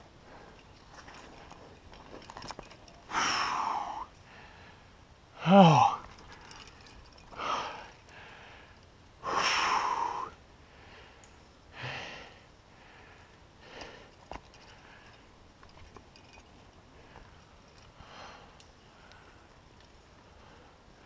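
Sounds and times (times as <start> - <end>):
person grunting: 5.4 - 6.0
hard breathing: 5.7 - 15.3.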